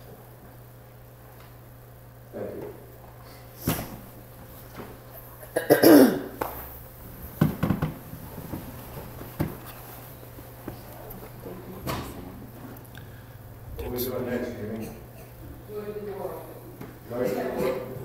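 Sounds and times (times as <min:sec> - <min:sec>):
person coughing loudly: 0:05.4 - 0:06.4, 0:17.2 - 0:17.9
knocks and handling of papers: 0:07.3 - 0:09.7.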